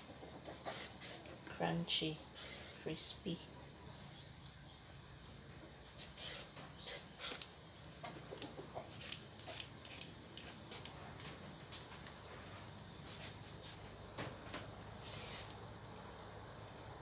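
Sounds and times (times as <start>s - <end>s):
peeler scraping fruit skin: 6.0s - 7.5s, 8.9s - 11.0s.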